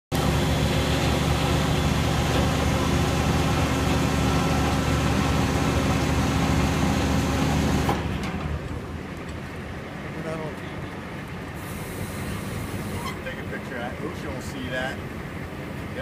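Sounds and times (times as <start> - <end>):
pump hoist engine running: 0.1 - 8.6, 11.6 - 13.4.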